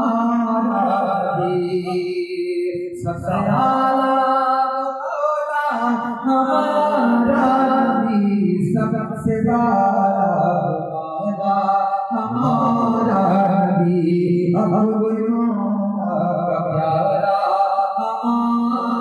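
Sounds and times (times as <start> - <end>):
man singing into a microphone: 0.0 - 19.0.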